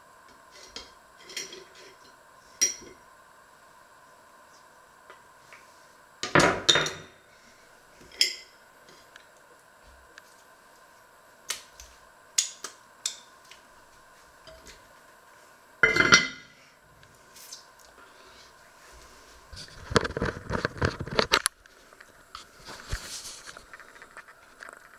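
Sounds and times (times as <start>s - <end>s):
kitchenware clattering: 6.2s - 7.1s, 15.8s - 16.5s.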